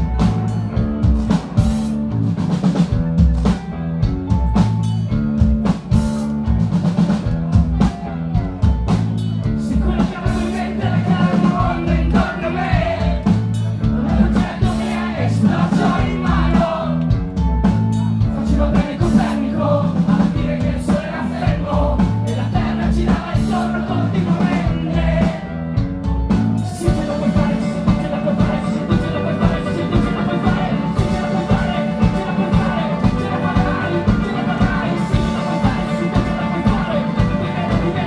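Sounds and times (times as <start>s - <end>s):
drum kit steady beat: 0.0s - 38.0s
rock band playing live: 0.0s - 38.0s
singer singing: 9.4s - 17.3s, 18.2s - 38.0s.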